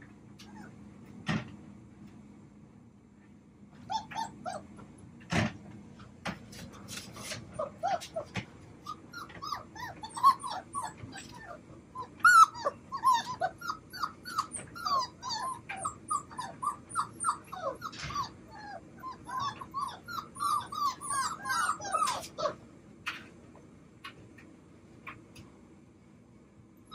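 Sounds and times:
puppies whining and yipping: 0.4s - 0.8s, 3.8s - 5.0s, 6.9s - 22.6s.

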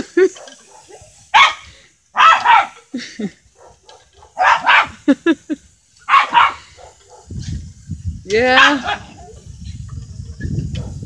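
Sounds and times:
small dog barking: 0.5s - 1.6s, 2.2s - 2.8s, 3.6s - 5.0s, 6.1s - 7.3s, 8.6s - 9.2s
dog yipping: 2.2s - 2.8s, 3.6s - 5.0s, 6.1s - 7.2s.

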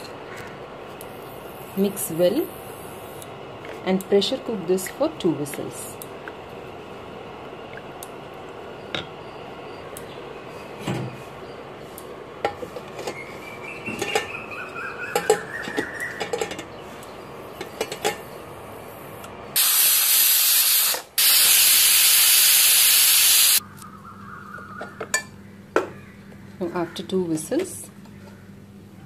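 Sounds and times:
pressure cooker whistling: 19.6s - 23.6s.

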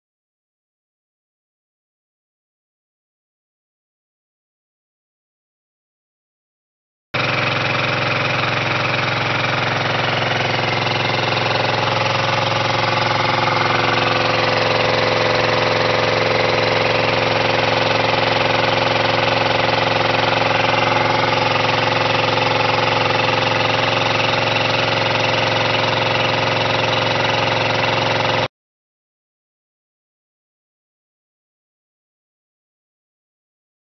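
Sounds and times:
diesel engine running: 7.2s - 28.5s.

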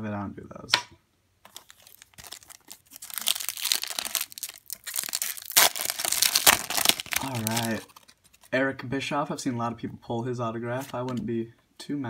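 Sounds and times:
foil wrapper crinkling: 1.4s - 8.5s
foil wrapper tearing: 1.5s - 8.5s.

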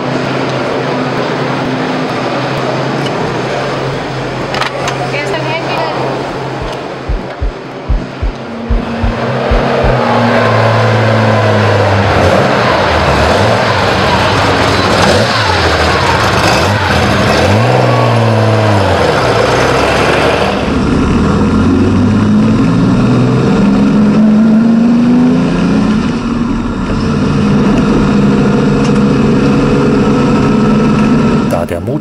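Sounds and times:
racing engine revving: 6.1s - 26.1s.

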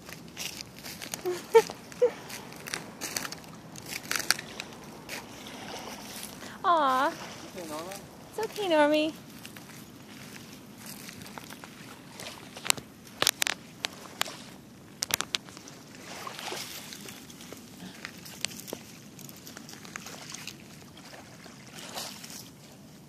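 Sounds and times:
clicks and crunches on gravel: 0.0s - 6.5s, 9.3s - 20.9s
small waves lapping on gravel: 0.0s - 23.0s.

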